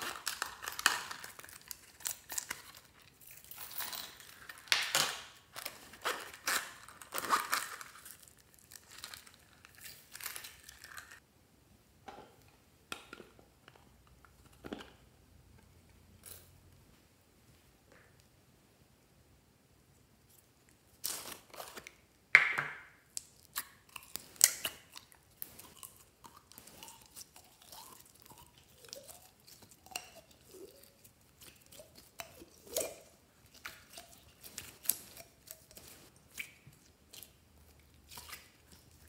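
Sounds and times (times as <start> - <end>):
slime squelching and crackling: 0.0 - 11.2, 23.2 - 39.0.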